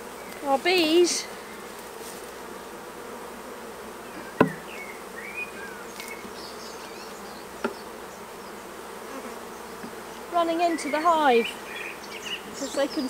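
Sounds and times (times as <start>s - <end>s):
bees buzzing: 0.0s - 13.0s
sharp knock: 4.4s - 4.6s.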